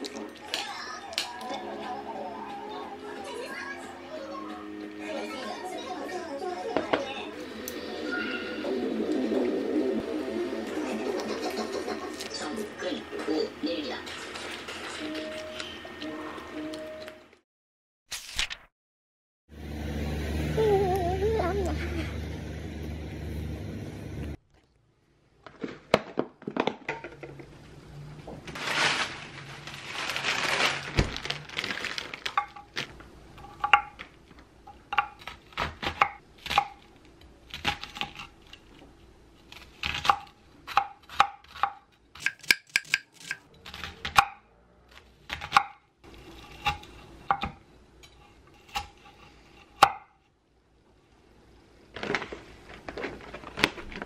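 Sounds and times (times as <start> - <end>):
knife chopping on wooden board: 46.6 - 47.6.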